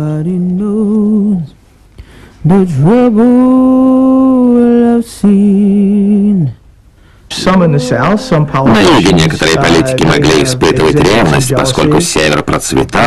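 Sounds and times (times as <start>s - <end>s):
person singing with vibrato: 2.4s - 6.7s.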